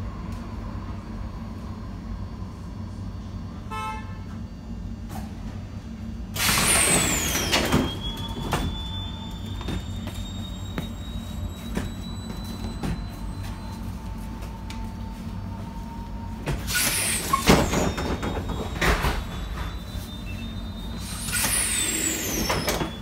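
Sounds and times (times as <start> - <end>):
tram humming: 0.0 - 23.0
tram doors hissing open: 2.4 - 23.0.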